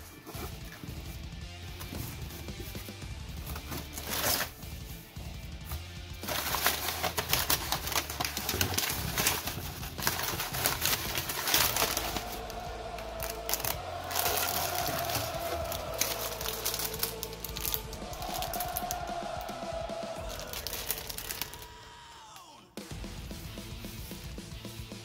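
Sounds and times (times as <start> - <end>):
packing paper rustling: 1.8 - 5.2, 6.2 - 21.7
plastic bag crinkling: 6.2 - 18.9, 20.3 - 21.7.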